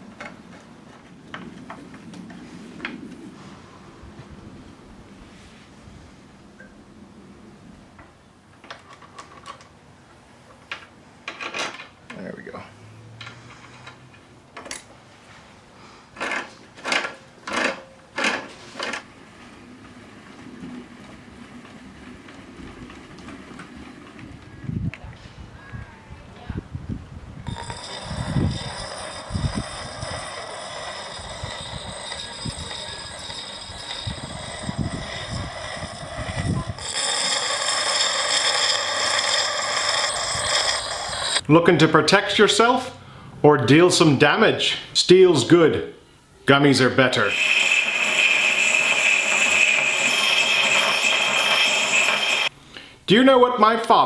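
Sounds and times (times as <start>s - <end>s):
wrench scraping metal: 27.4s - 41.4s, 47.1s - 52.6s.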